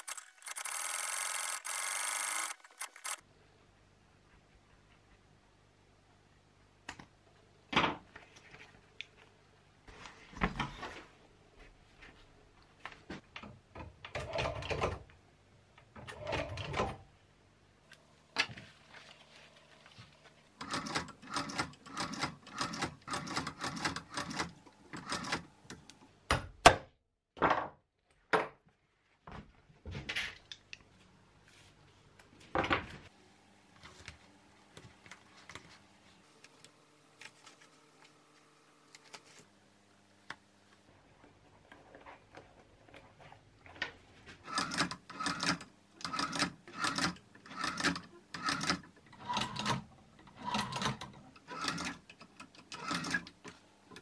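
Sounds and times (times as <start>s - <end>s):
sewing machine stitching leather: 20.6s - 25.5s, 44.4s - 53.3s.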